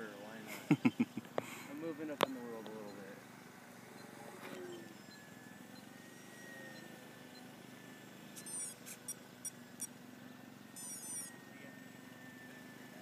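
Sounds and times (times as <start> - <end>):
model plane motor whine: 1.2 - 13.0
short high chirps and clicks: 8.4 - 9.9, 10.8 - 11.3.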